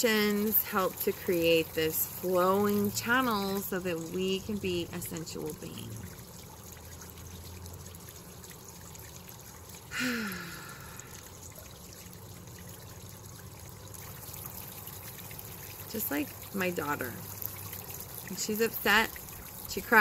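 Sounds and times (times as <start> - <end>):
trickling water: 0.0 - 20.0
short falling vocal sigh: 9.9 - 11.2.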